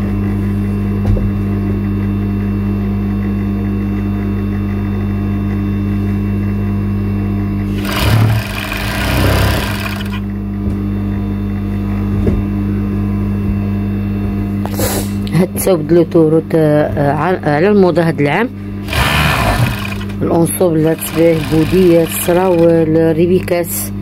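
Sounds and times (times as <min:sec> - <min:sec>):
overlock sewing machine running: 0:07.7 - 0:10.2, 0:18.8 - 0:22.9.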